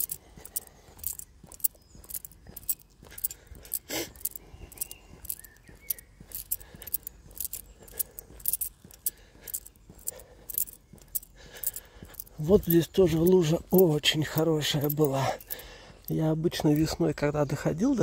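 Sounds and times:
footsteps on dirt path: 0:00.0 - 0:18.0.

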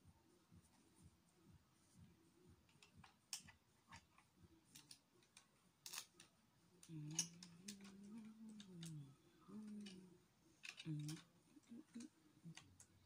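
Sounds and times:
person humming: 0:06.8 - 0:12.6.

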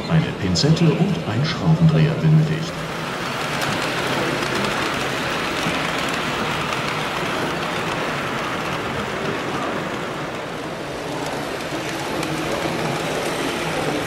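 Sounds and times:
model train wheels rumbling: 0:01.2 - 0:14.0.

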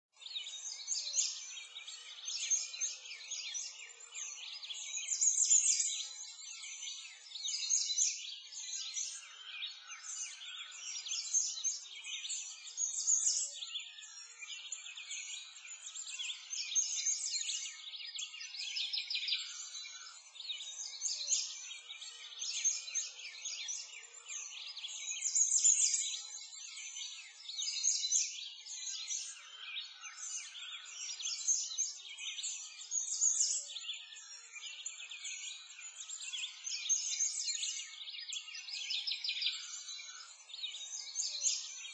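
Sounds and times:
birds chirping and singing: 0:00.2 - 0:41.9.

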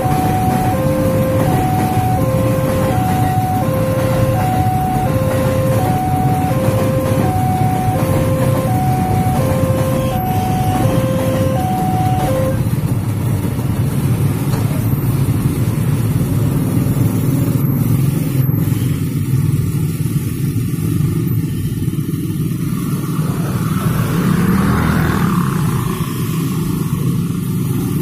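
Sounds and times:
level crossing two-note warning tones: 0:00.0 - 0:12.7
motorcycle and car engines rumbling: 0:00.0 - 0:28.0.

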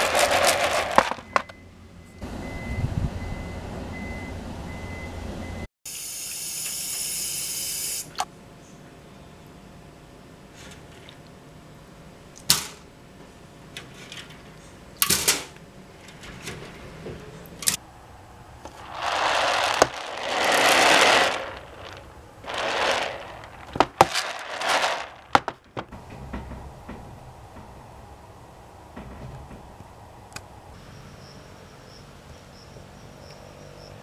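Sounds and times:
seeds rattling across tray: 0:00.0 - 0:01.4, 0:18.7 - 0:25.6.

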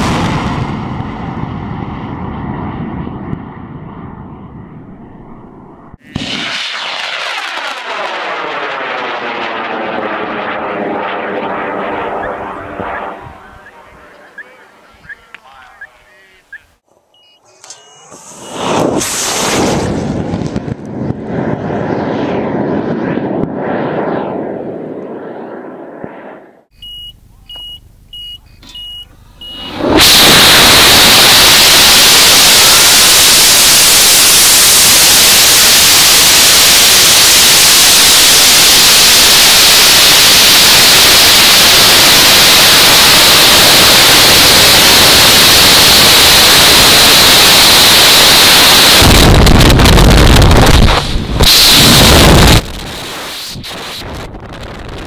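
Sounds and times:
rocket motor roar: 0:00.0 - 0:14.8, 0:18.0 - 0:26.7, 0:29.2 - 0:55.0
short high beeps: 0:17.1 - 0:18.6, 0:26.7 - 0:29.8
loud steady air rush: 0:29.6 - 0:49.8, 0:50.6 - 0:54.3.

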